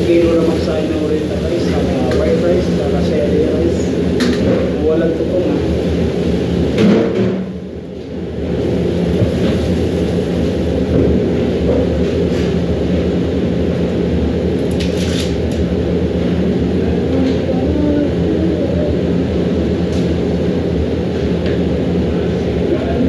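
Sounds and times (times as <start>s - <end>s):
low rumble of kitchen range: 0.0s - 23.0s.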